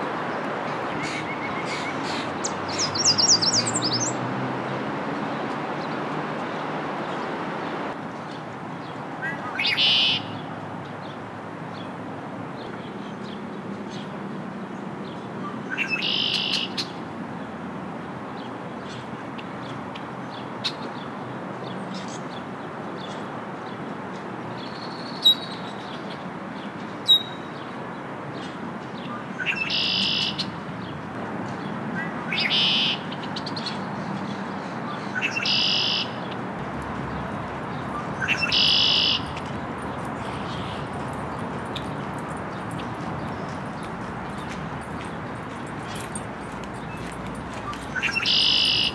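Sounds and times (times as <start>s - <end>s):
blackbird song: 0.9s - 4.3s, 8.2s - 11.9s, 12.6s - 17.0s, 24.6s - 27.8s, 28.4s - 36.4s, 37.0s - 48.9s
sharp loud bird notes: 35.2s - 36.2s, 38.0s - 39.4s, 47.9s - 48.9s.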